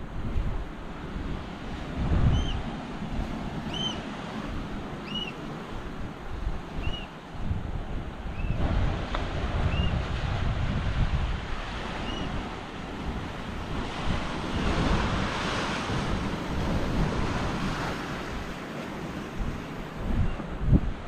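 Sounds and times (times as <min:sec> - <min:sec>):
ocean surf washing ashore: 0:00.0 - 0:21.0
wind buffeting microphone: 0:00.0 - 0:21.0.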